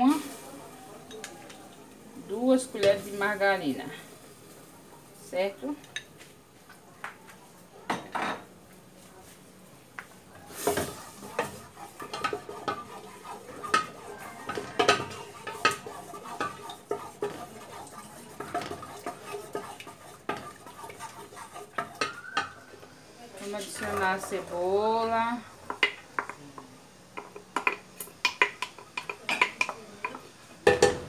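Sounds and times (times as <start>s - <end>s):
wooden spoon scraping metal pot: 10.4s - 22.6s, 23.4s - 24.7s.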